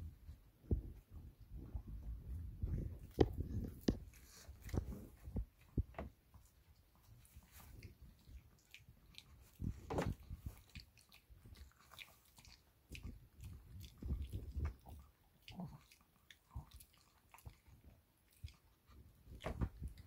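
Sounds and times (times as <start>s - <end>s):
dog crunching cabbage leaf: 7.2s - 18.9s.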